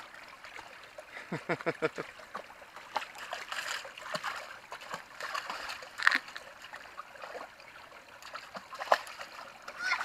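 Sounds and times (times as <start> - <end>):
stream running water: 0.0 - 10.0
dog paws splashing: 2.3 - 7.6, 8.2 - 10.0.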